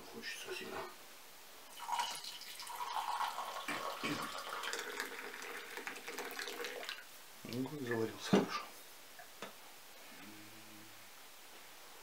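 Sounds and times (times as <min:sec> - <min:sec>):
hot drink pouring into mug: 0:01.7 - 0:07.1.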